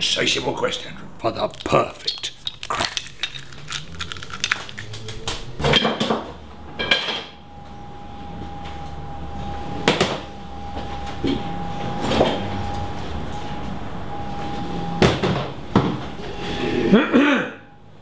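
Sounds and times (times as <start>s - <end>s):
kitchenware clinking and clattering: 1.5s - 7.3s
steady high tone: 6.5s - 18.0s.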